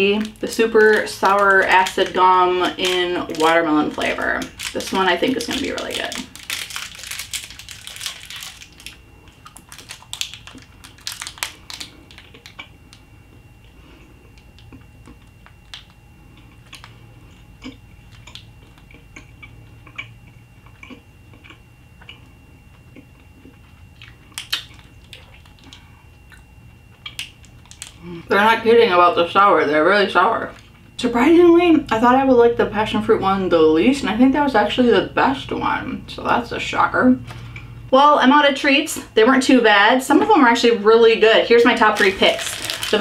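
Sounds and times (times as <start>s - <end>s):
candy wrapper crinkling: 0.0s - 13.0s, 14.4s - 16.0s, 24.3s - 25.8s, 27.1s - 28.1s, 41.8s - 43.0s
quiet gum chewing: 11.5s - 28.1s.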